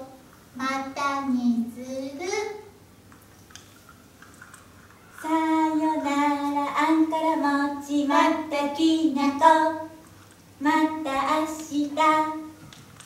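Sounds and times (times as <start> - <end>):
high voice singing: 5.0 - 10.0.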